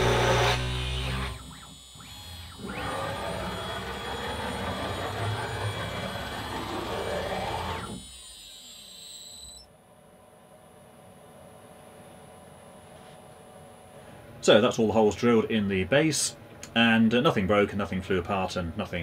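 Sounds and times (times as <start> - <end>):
drill bit cutting chipboard: 0.0 - 9.7
high spindle whine: 0.0 - 9.8.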